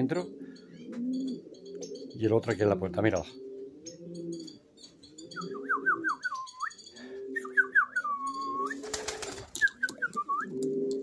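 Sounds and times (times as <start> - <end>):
birds chirping: 0.0 - 11.0
pigeons cooing: 0.0 - 11.0
wings flapping: 8.7 - 10.7.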